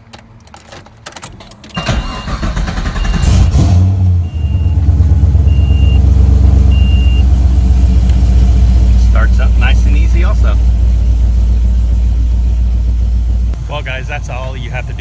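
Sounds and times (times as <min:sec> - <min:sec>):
car engine starting and idling: 0:00.0 - 0:15.0
warning chime beeping: 0:05.4 - 0:06.1, 0:06.7 - 0:07.2.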